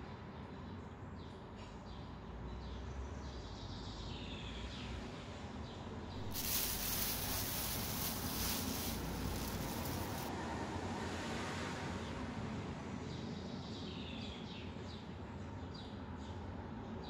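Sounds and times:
plastic wrapping rustling: 6.2 - 10.3.

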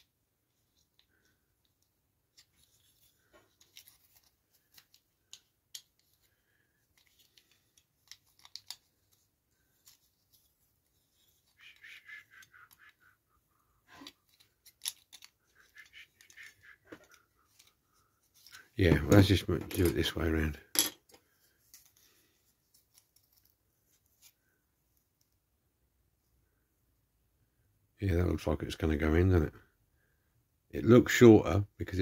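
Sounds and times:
small plastic parts clicking: 0.7 - 10.5, 13.9 - 20.0.

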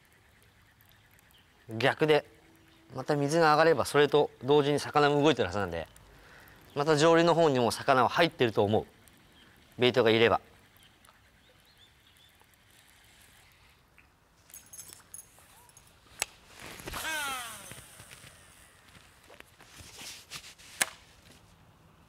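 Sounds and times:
fishing reel spool whirring: 0.0 - 13.8, 16.8 - 19.4
rod and reel handling rustles: 14.4 - 21.5.

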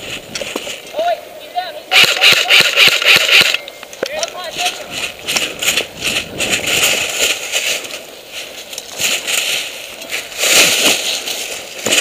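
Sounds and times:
footsteps crunching through dry leaves: 4.4 - 12.0.

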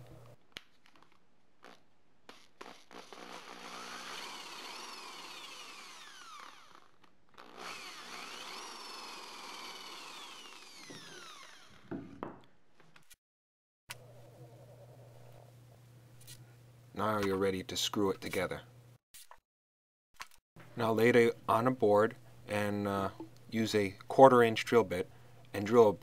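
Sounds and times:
power drill boring into wood: 2.3 - 11.9.

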